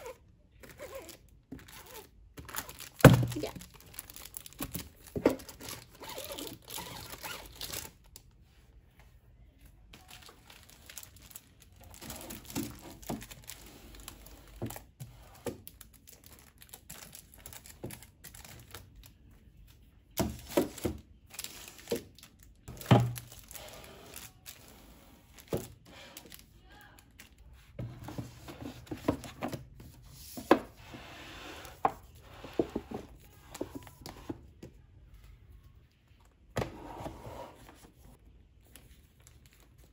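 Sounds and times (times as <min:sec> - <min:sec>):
plastic wrapping crinkling and tearing: 0:00.6 - 0:08.3, 0:10.0 - 0:14.8, 0:15.6 - 0:19.2, 0:20.7 - 0:24.7, 0:38.6 - 0:39.9
books sliding on a shelf: 0:27.8 - 0:34.4, 0:36.6 - 0:38.1.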